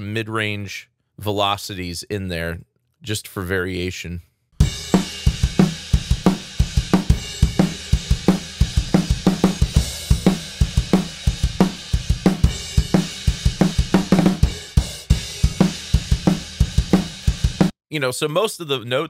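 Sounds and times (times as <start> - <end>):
drum kit playing a groove: 4.6 - 17.7.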